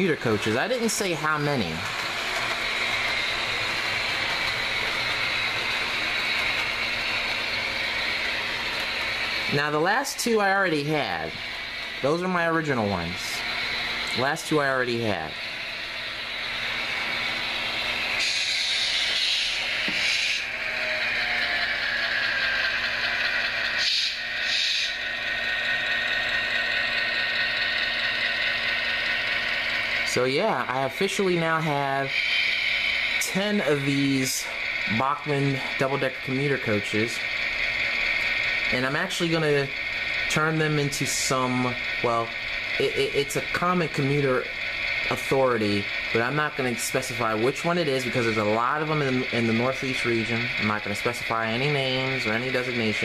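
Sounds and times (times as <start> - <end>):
model train wheels rattling: 0.0 - 15.4, 16.2 - 53.0
steady hum and hiss: 0.0 - 53.0
short hisses: 18.1 - 20.6, 23.8 - 25.0.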